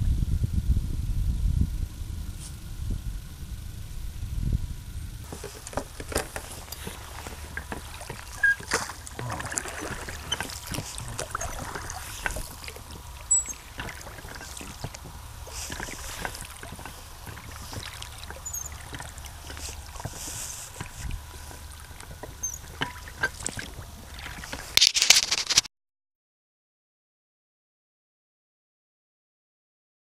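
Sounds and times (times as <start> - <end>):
steady low rumble: 0.0 - 24.8
water lapping against boat hull: 5.2 - 25.6.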